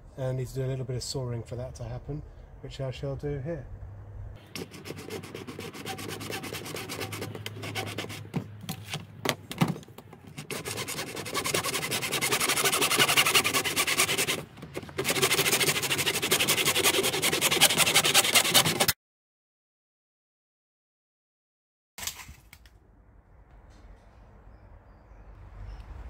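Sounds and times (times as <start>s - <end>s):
hand saw cutting plastic pipe: 4.4s - 8.9s, 10.3s - 19.0s.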